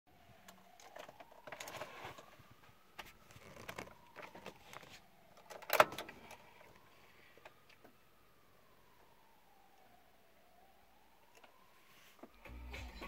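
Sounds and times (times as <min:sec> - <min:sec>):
hands and phone rustling: 0:01.2 - 0:05.1.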